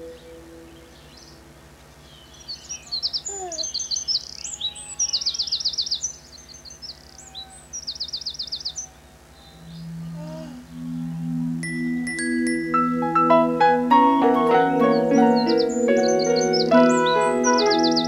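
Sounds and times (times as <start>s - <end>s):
low steady tone: 0.0s - 1.9s, 9.3s - 18.0s
songbird trilling and chirping: 0.0s - 14.0s, 14.6s - 18.0s.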